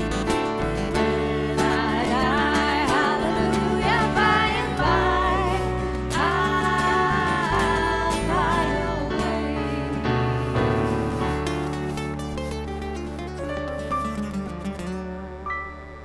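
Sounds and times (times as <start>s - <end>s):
electric bass: 0.0s - 16.0s
strummed acoustic guitars: 0.0s - 16.0s
woman singing: 1.0s - 10.0s.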